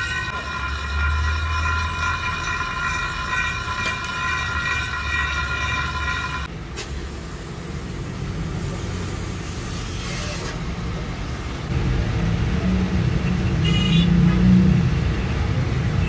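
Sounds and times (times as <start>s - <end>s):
metal tube rubbing on floor: 0.0s - 6.5s.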